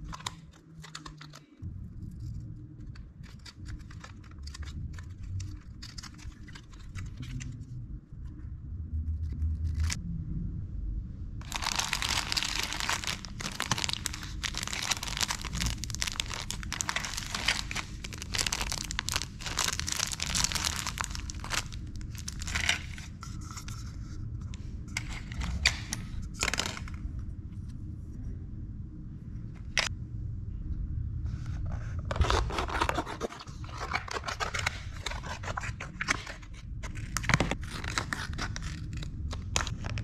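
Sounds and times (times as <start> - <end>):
plastic and foil sachets crinkling: 11.4 - 23.2, 33.6 - 40.0.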